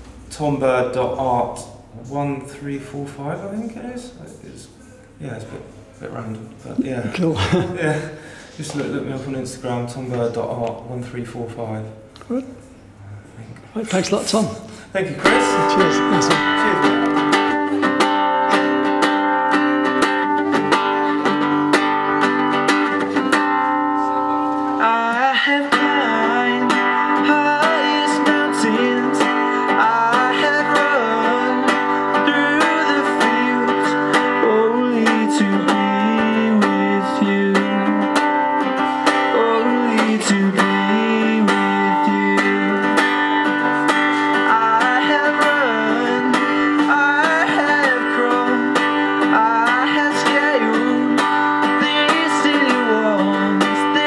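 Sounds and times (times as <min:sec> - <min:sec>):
acoustic guitar music: 0:00.0 - 0:13.0, 0:13.8 - 0:54.0
person singing: 0:15.2 - 0:54.0.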